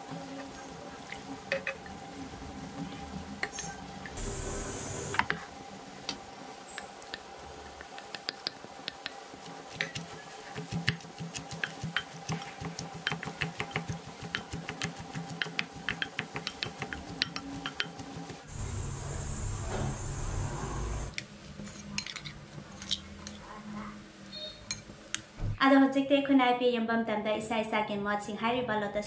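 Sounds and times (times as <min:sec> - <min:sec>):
spoon stirring batter in bowl: 0:06.7 - 0:18.4.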